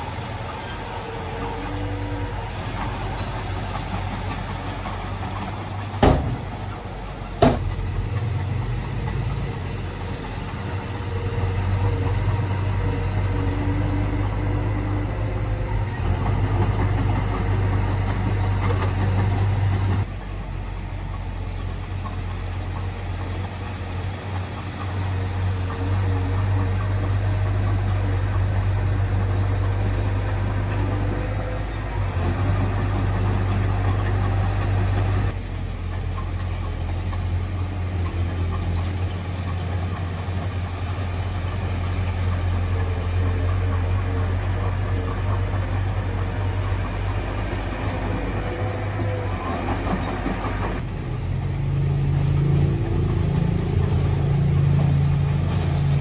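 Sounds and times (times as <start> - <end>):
higher engine note: 0.0 - 21.6, 40.2 - 56.0
diesel engine humming: 0.0 - 56.0.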